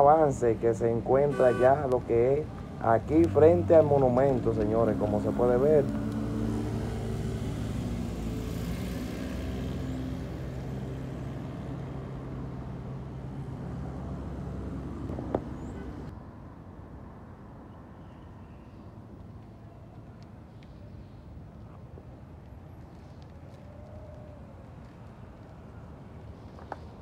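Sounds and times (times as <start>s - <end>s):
quiet street background: 0.0s - 27.0s
vehicle engine running: 2.0s - 16.1s.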